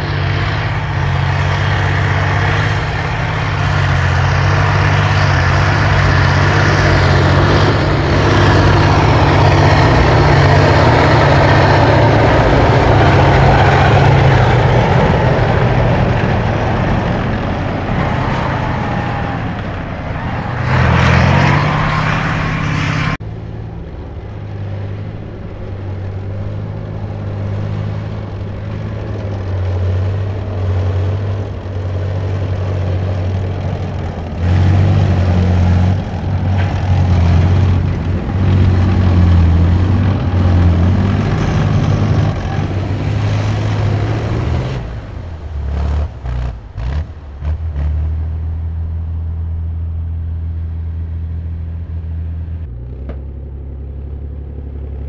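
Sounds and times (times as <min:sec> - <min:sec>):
armoured vehicle diesel engine: 0:00.0 - 0:55.0
tank diesel engine running: 0:00.0 - 0:55.0
wavering squeal: 0:17.4 - 0:23.2.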